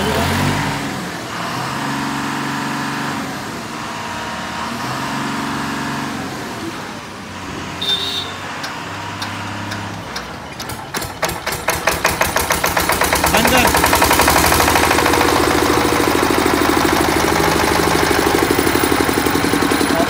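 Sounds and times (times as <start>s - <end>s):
engine and traffic hum: 0.0s - 20.0s
diesel engine cranking with knocks: 8.4s - 20.0s.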